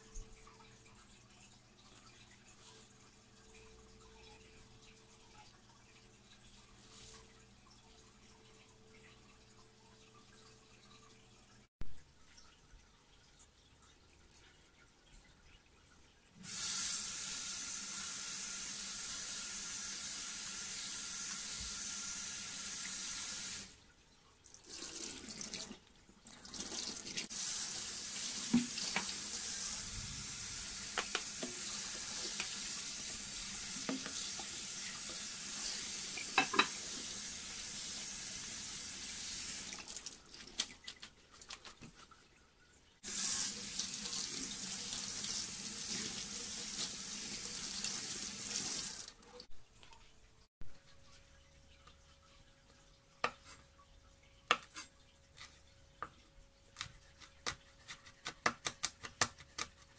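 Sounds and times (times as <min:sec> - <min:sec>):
tap running into steel sink: 0:36.3 - 0:36.8.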